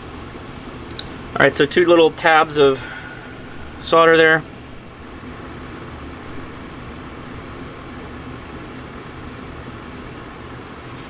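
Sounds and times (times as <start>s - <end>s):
background hum and hiss: 0.0s - 11.0s.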